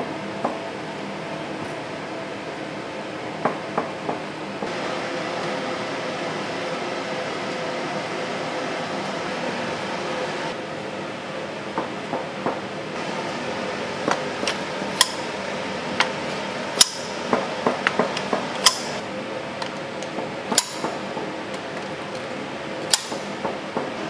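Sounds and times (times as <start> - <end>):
steady fan hum: 0.0 - 24.0.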